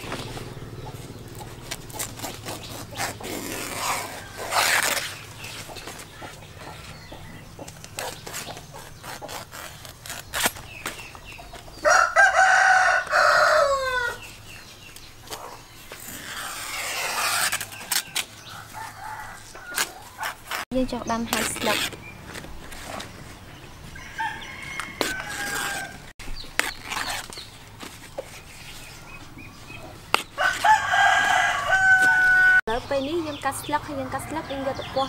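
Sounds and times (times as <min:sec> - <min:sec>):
knife cutting banana leaves: 0:01.4 - 0:06.4, 0:07.6 - 0:11.7, 0:14.9 - 0:23.2, 0:24.7 - 0:29.3, 0:30.0 - 0:32.6
rooster crowing: 0:11.8 - 0:14.3, 0:18.5 - 0:20.4, 0:23.8 - 0:26.1, 0:30.4 - 0:32.7.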